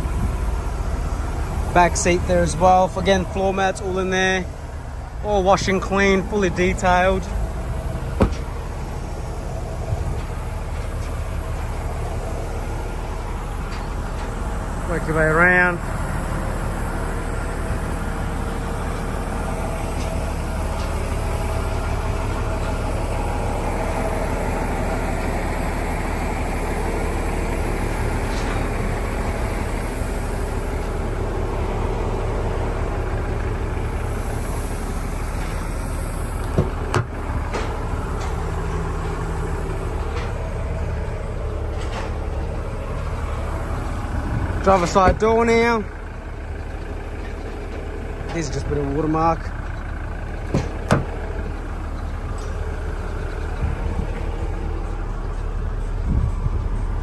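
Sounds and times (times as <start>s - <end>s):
car engine idling: 0.0s - 57.0s
door latch clunk: 8.2s - 8.5s, 36.5s - 37.1s, 50.5s - 51.2s.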